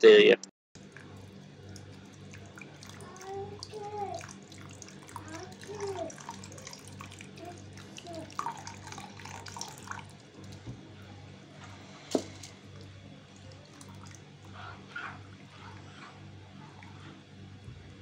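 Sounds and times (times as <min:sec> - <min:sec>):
liquid pouring and dripping: 0:00.8 - 0:10.9, 0:12.1 - 0:14.6
ladle stirring thick liquid: 0:00.8 - 0:18.0.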